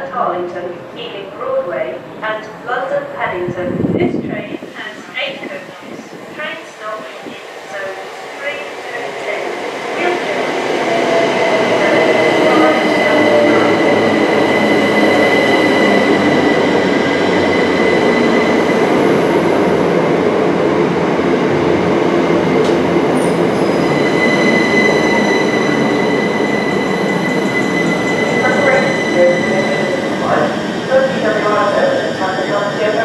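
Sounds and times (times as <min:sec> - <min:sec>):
high-pitched squeal: 0:23.2 - 0:32.6.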